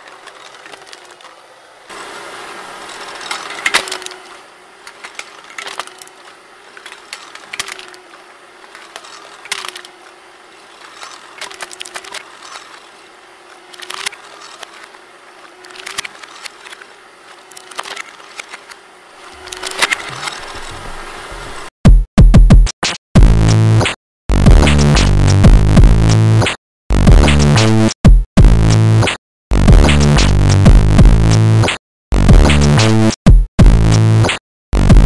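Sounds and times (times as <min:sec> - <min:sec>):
cans crunching in crusher: 0:00.0 - 0:20.6.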